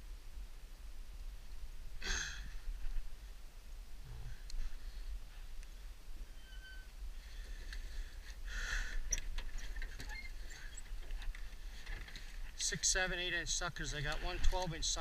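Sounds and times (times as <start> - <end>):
steady low rumble: 0.0 - 9.6.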